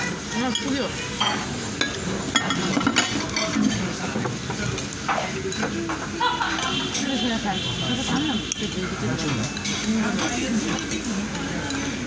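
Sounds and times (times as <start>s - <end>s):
chopsticks clicking on bowls: 8.5s - 12.0s.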